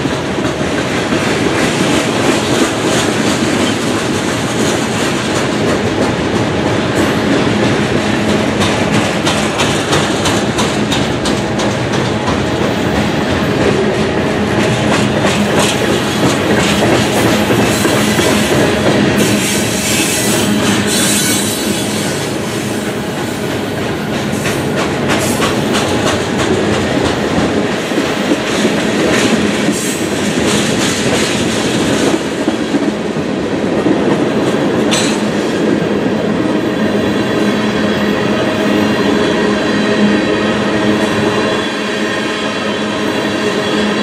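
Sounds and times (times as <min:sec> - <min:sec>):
train wheels rumbling on rail: 0:00.0 - 0:44.0
wheels clanking over rail joints: 0:00.1 - 0:22.3.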